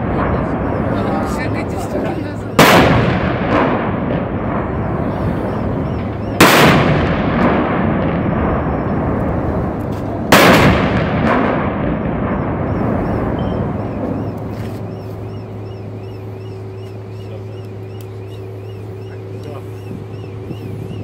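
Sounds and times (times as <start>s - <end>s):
steady low hum: 0.0s - 21.0s
artillery salute boom: 2.6s - 15.6s.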